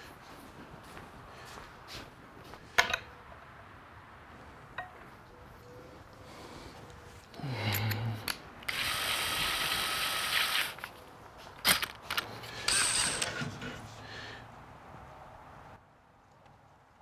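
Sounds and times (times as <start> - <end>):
drill chuck ratcheting: 8.6 - 9.8, 11.7 - 13.4
cordless drill motor spurts: 8.7 - 10.9, 12.6 - 13.4.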